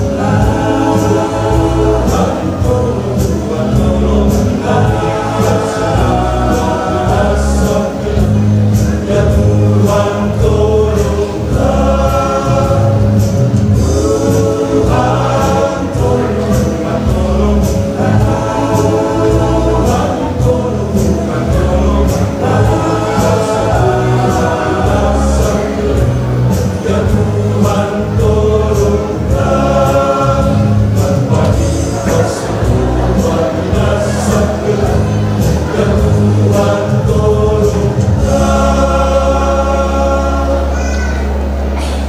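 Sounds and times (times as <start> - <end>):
choir singing a hymn: 0.0 - 42.0.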